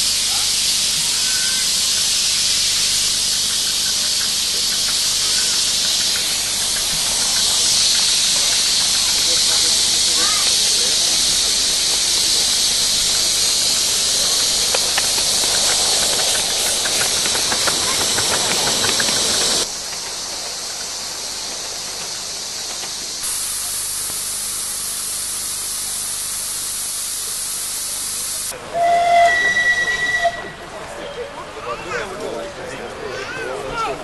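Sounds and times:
steam locomotive hissing: 0.0s - 31.6s.

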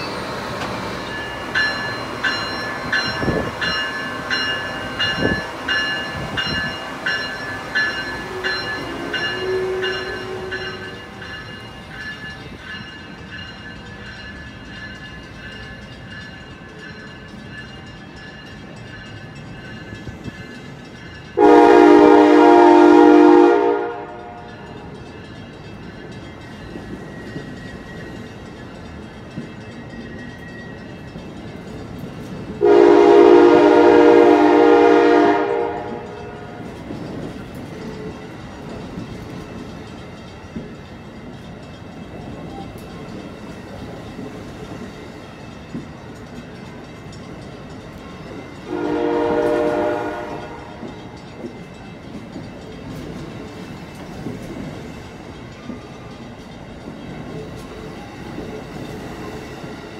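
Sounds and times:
train cars rumbling on rails: 0.0s - 59.9s
train air horn blasts: 8.2s - 11.0s, 21.4s - 24.5s, 32.6s - 36.6s, 48.7s - 51.1s.

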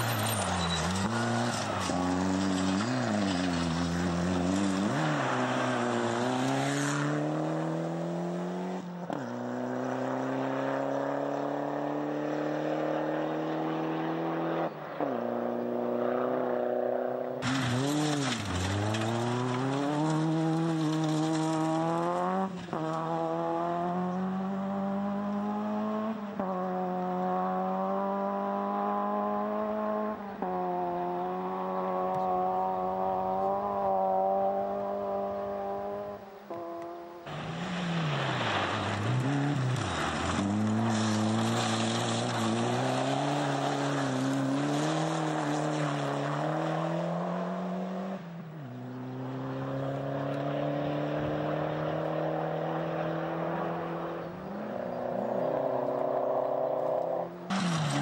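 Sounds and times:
rally car engines accelerating: 0.0s - 58.0s.

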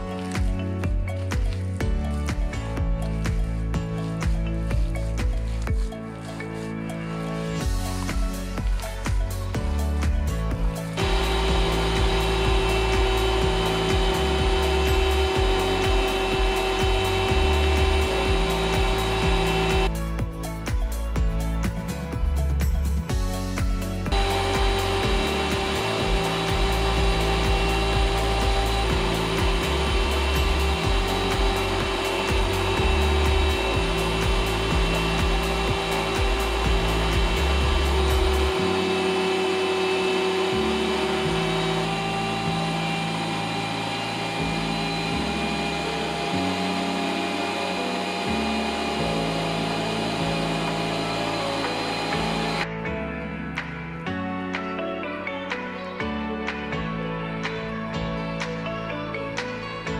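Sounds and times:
background music with slow bass: 0.0s - 59.9s
electric meat grinder motor humming: 10.7s - 20.0s, 24.1s - 52.7s.

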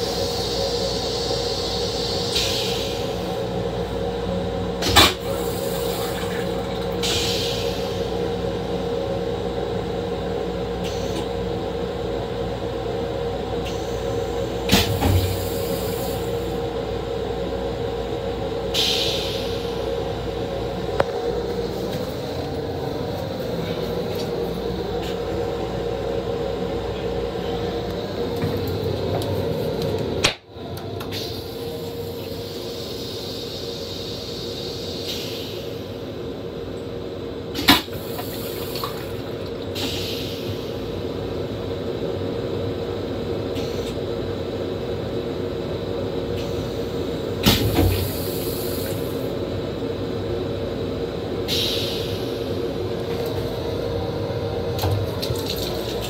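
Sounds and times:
railcar running rumble: 0.0s - 56.0s
toilet flushing: 4.8s - 8.0s, 54.8s - 56.0s.

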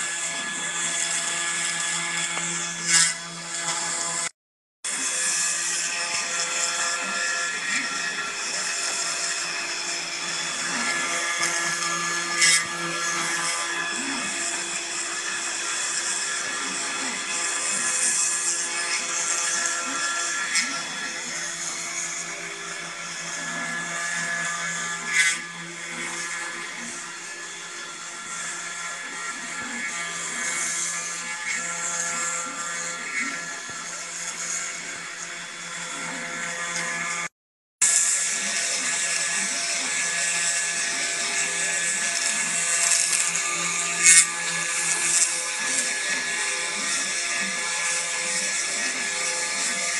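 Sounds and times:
spindle motor humming: 0.0s - 4.3s, 4.9s - 49.9s
loud scrape: 0.0s - 27.5s, 36.0s - 49.9s
engraving bit cutting wood: 0.0s - 49.9s.

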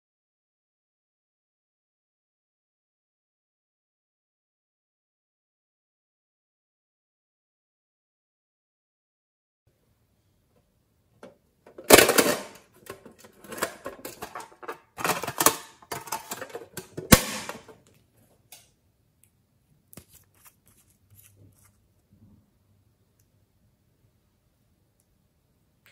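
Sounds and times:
tool scraping inside metal tin: 11.8s - 17.7s.

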